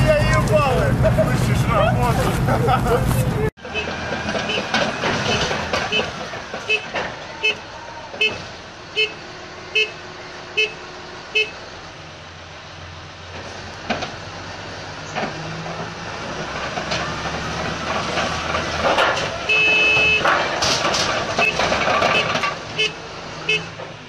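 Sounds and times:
diesel engine working: 0.0s - 24.0s
brick rubble clattering: 3.8s - 7.3s, 15.3s - 22.8s.

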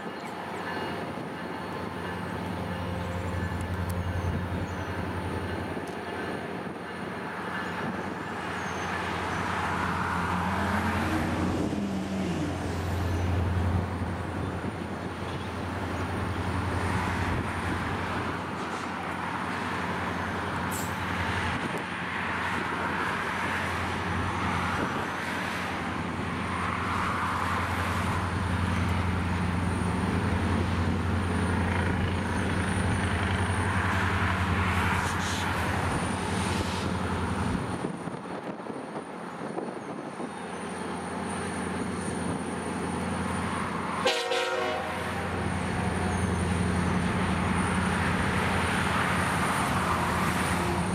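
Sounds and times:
diesel locomotive engine droning: 0.0s - 50.9s
locomotive horn toot: 44.0s - 45.3s.

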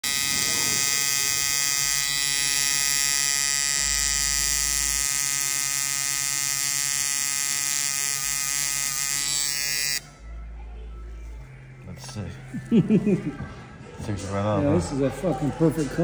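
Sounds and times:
tattoo machine buzzing: 0.0s - 10.0s.

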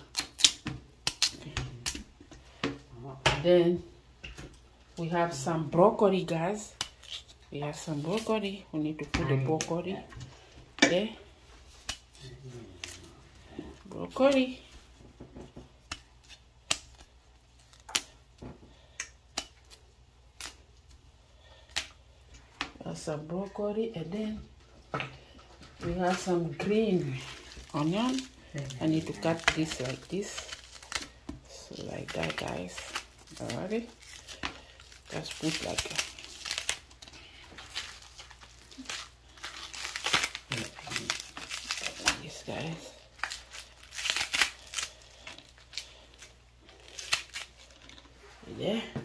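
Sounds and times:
leafy rustling: 26.0s - 48.8s.

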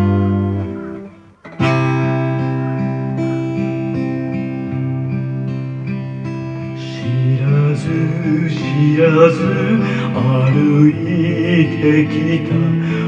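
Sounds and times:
acoustic guitar: 0.0s - 13.0s
man singing: 6.7s - 13.0s.

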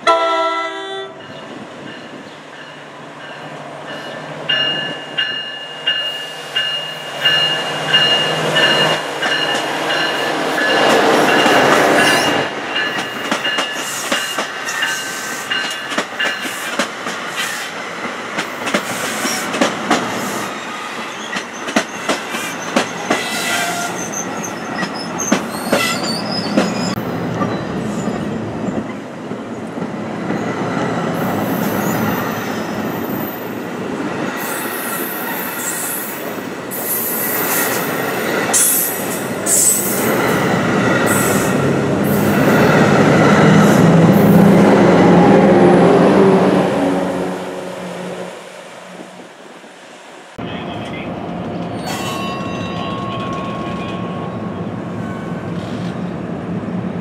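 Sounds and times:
diesel locomotive passing: 0.0s - 57.0s
high wheel squeals: 20.6s - 28.2s.

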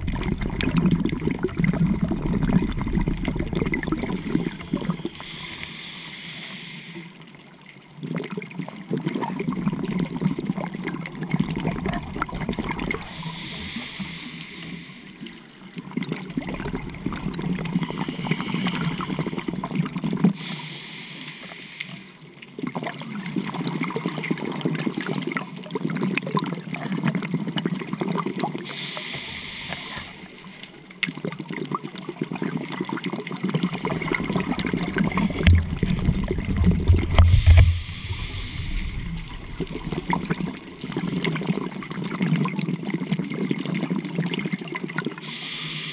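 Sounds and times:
bubbling exhaust bubbles: 0.0s - 5.3s, 8.0s - 13.6s, 15.7s - 20.4s, 31.1s - 45.2s
scuba regulator inhale hiss: 4.4s - 7.3s, 13.0s - 15.2s, 17.6s - 19.6s, 20.4s - 22.2s, 28.6s - 30.8s, 37.3s - 40.0s, 45.2s - 45.9s.

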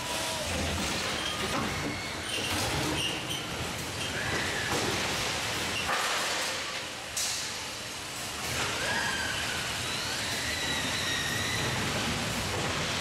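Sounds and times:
indoor amusement park din: 0.0s - 13.0s
faint high squeals: 8.6s - 12.1s.

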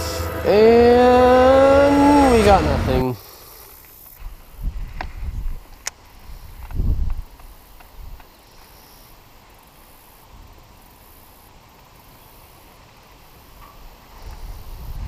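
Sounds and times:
wind rumbling on microphone: 4.2s - 8.3s, 14.1s - 15.0s.

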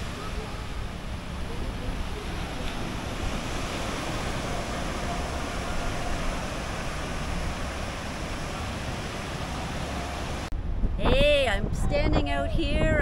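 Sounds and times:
small waves washing on sand: 0.0s - 10.5s
wind rumbling on microphone: 0.0s - 13.0s.

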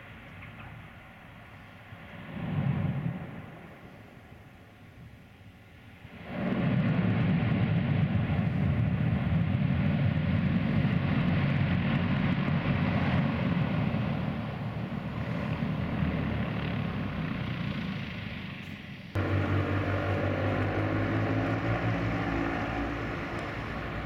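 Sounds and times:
turboprop engines running: 8.4s - 24.0s.

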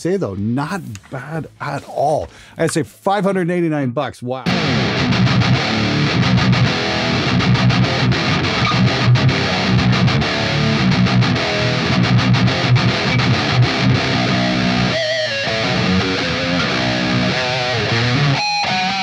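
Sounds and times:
distorted electric guitar riff: 4.5s - 19.0s.

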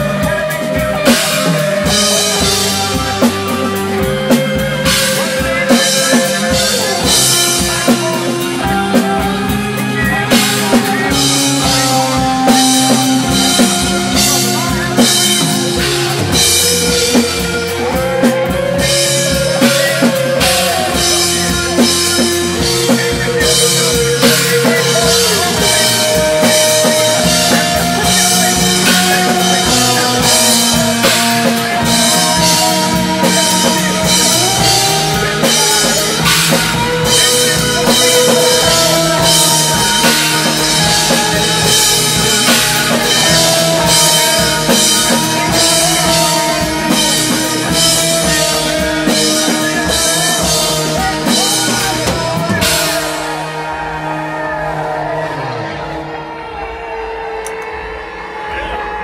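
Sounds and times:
live rock band playing: 0.0s - 59.0s.

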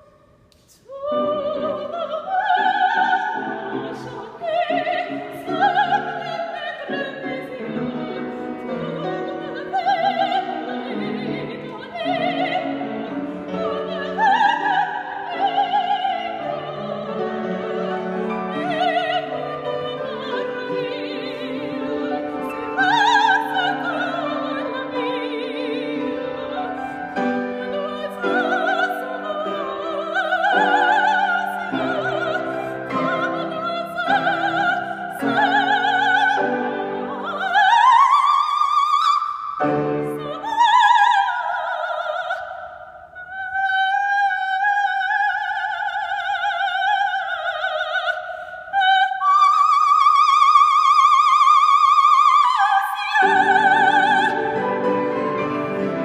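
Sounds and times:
operatic soprano singing: 0.0s - 56.0s
piano accompaniment: 1.1s - 38.1s, 53.1s - 56.0s.

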